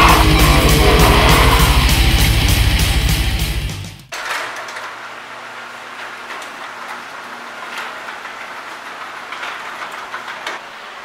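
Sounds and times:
intro music: 0.0s - 4.1s
garage door opener humming: 0.0s - 11.0s.

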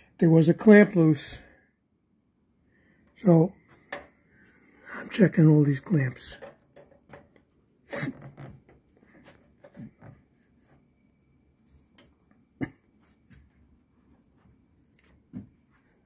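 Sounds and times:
small handling clicks and rubs: 6.4s - 16.0s.

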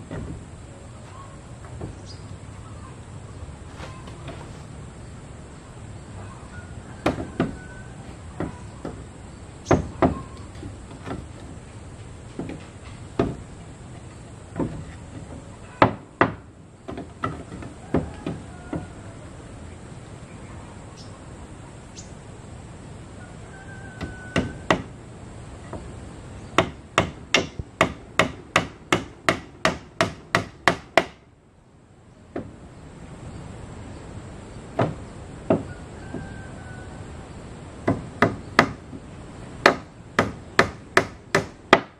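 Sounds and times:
hammer nailing wooden boards: 7.0s - 7.6s, 9.7s - 11.6s, 12.3s - 18.9s, 24.0s - 24.9s, 26.6s - 31.3s, 34.7s - 36.2s, 37.8s - 39.0s, 39.6s - 41.9s.

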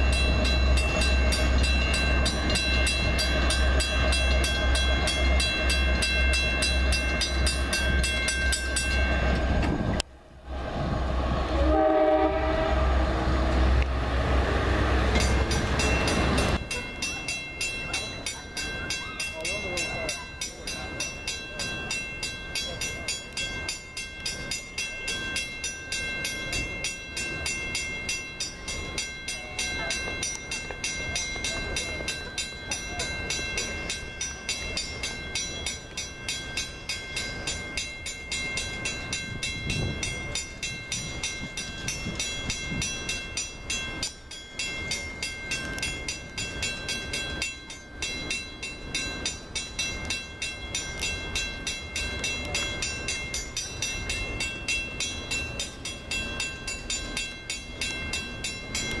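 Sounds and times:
electronic crossing bell ringing: 0.0s - 9.6s
train approaching on track: 0.0s - 59.0s.

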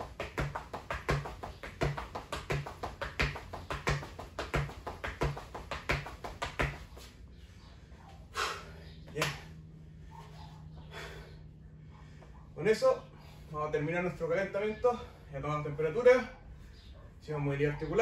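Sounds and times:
footsteps tapping hard floor: 0.0s - 7.1s
sharp breath: 7.9s - 9.0s.

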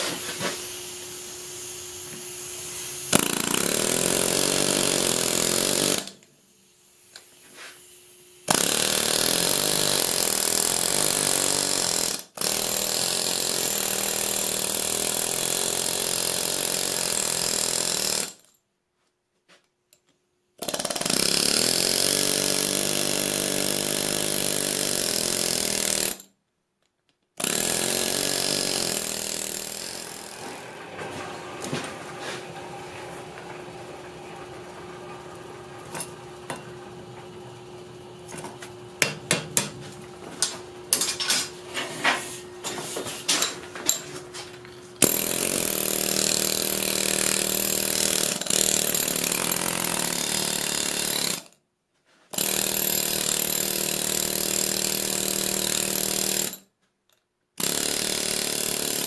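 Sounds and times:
air hammer hammering hot steel: 0.0s - 6.2s, 35.9s - 36.9s, 39.0s - 39.8s.

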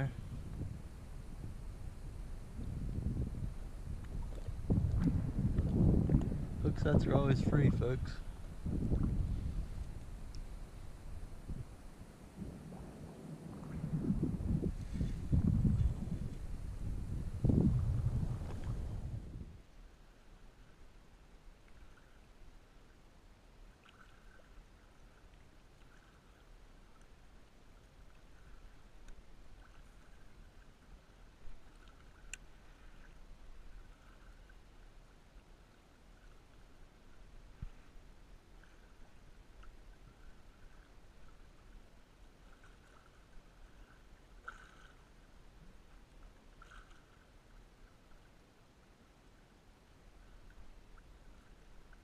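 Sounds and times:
low steady rumble: 0.0s - 23.5s
faint low wind rumble: 0.0s - 52.0s
water lapping: 0.0s - 52.0s
light click: 9.8s - 10.5s, 32.3s - 32.5s.

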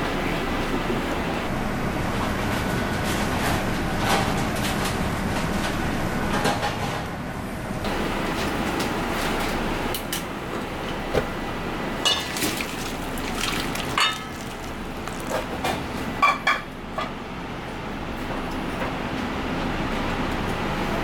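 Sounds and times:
kitchen range noise: 12.0s - 17.1s
hot water pouring into bowl: 12.1s - 15.7s.

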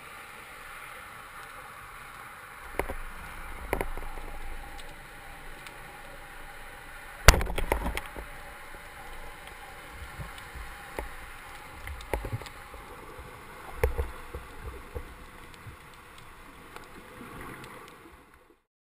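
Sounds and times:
underwater noise: 0.0s - 18.6s
speargun firing underwater: 7.2s - 8.4s.

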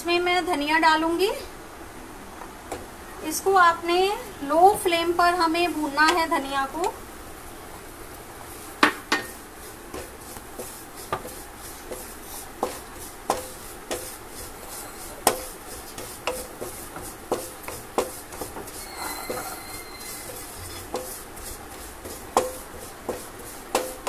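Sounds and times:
wooden spatula scraping a pan: 8.4s - 24.0s.

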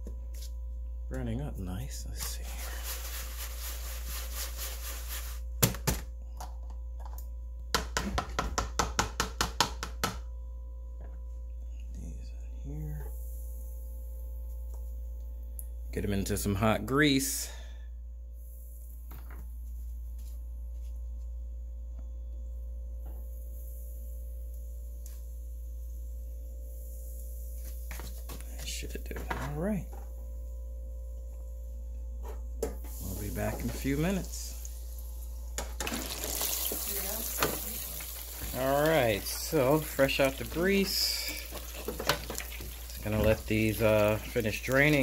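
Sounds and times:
low electrical hum: 0.0s - 45.0s
food shaken in plastic tub: 2.4s - 5.5s.

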